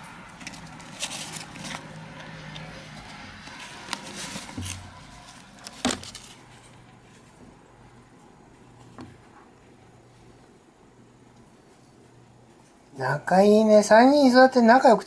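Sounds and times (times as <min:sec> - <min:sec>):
hamsters rustling paper bedding: 0:00.3 - 0:06.7.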